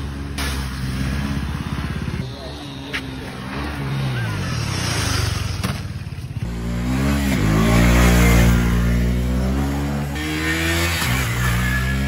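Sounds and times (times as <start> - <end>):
motorcycle engine running: 0.0 - 12.0
motorcycle engine revving hard: 3.1 - 12.0.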